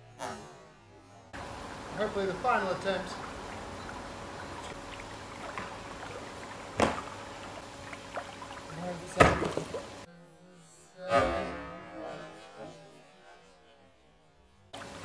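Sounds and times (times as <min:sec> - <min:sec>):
steady hiss: 0:01.4 - 0:10.1
plastic pipe knocking: 0:06.8 - 0:07.2.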